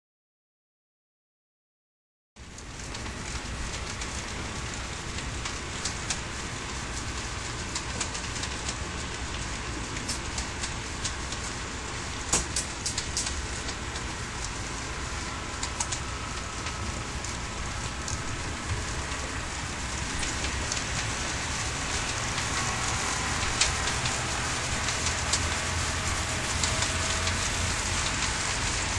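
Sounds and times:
model train wheels rattling: 0:02.6 - 0:28.9.

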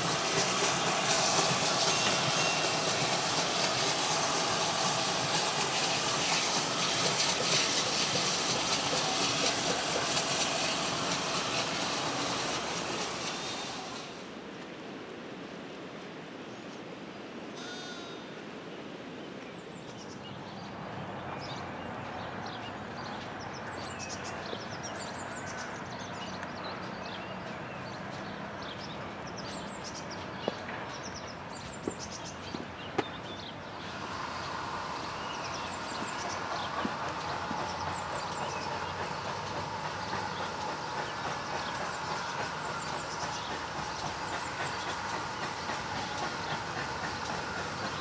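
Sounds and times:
small birds chirping: 0:19.8 - 0:48.0
rushing background noise: 0:31.5 - 0:48.0.

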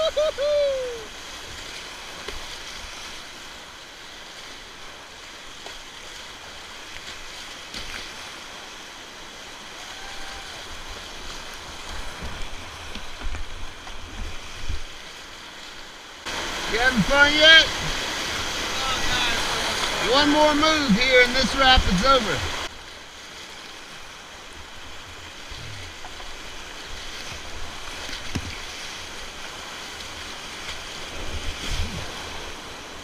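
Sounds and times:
whitewater roaring: 0:00.0 - 0:33.0
low thumps and splashes: 0:10.8 - 0:15.0, 0:16.2 - 0:22.8, 0:24.9 - 0:33.0.

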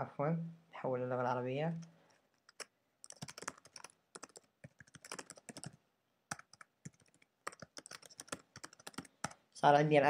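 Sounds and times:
keyboard typing: 0:01.8 - 0:09.4.

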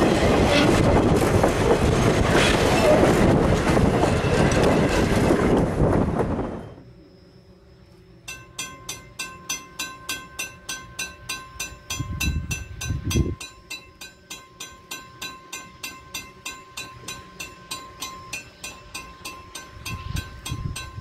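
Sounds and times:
railroad crossing bell ringing: 0:08.2 - 0:21.0.

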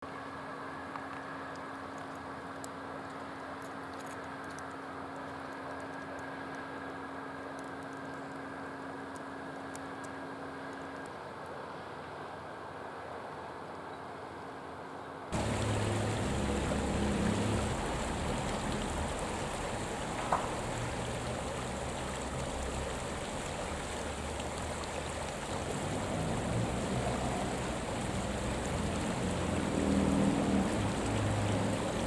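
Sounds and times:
stream water rushing: 0:15.3 - 0:32.0
faint hiss: 0:15.4 - 0:32.0.

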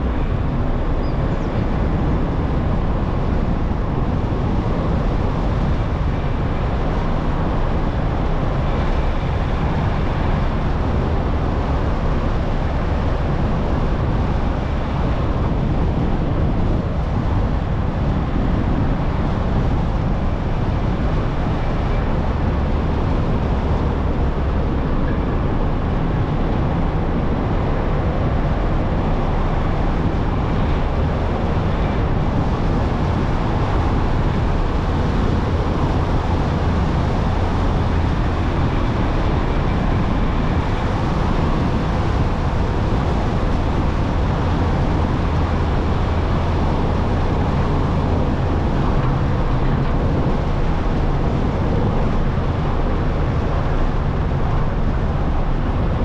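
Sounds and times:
tyre and road noise: 0:00.0 - 0:56.0
wind: 0:00.0 - 0:56.0.

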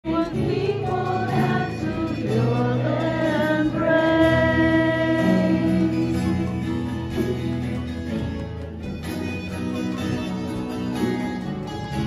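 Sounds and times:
women singing a worship song: 0:00.1 - 0:06.2.

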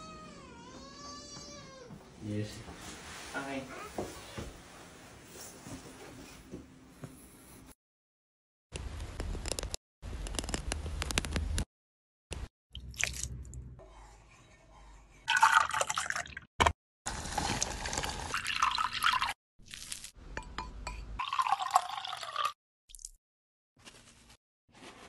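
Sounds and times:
juice pouring into container: 0:12.8 - 0:13.3, 0:15.3 - 0:16.4, 0:17.1 - 0:20.1, 0:21.2 - 0:23.1
juice dripping: 0:12.8 - 0:13.4.

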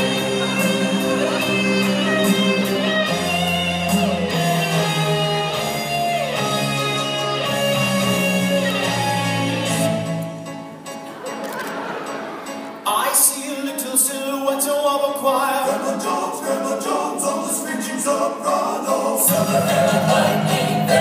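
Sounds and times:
held bass notes: 0:00.0 - 0:10.6, 0:19.3 - 0:21.0
guitar playing: 0:00.0 - 0:12.9, 0:19.3 - 0:21.0.

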